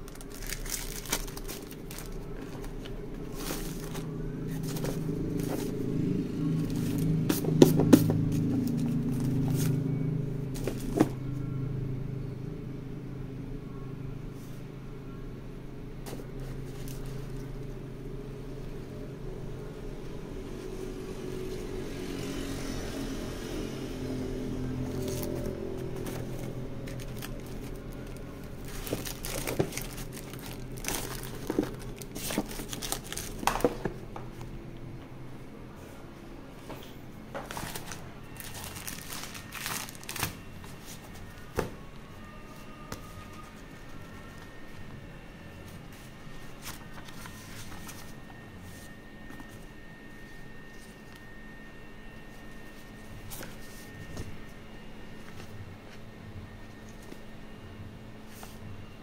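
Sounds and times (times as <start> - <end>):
pages rustling: 0.0 - 5.8, 24.9 - 34.0, 37.5 - 41.2, 45.7 - 49.7
low hum: 0.0 - 59.0.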